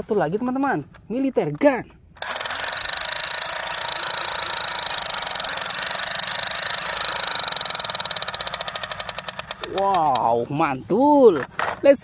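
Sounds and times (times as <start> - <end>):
toy machine gun rattle: 2.2 - 10.3.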